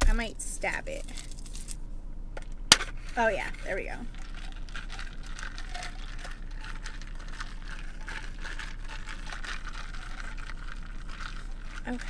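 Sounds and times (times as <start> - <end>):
plastic straw scraping in cup: 2.9 - 12.0.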